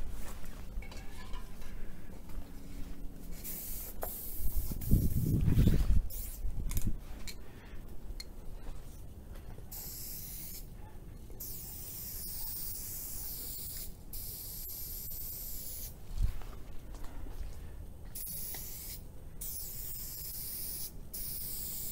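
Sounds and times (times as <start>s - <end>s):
spray paint can hissing: 3.3s - 6.4s, 9.7s - 10.7s, 11.4s - 16.0s, 18.1s - 21.9s.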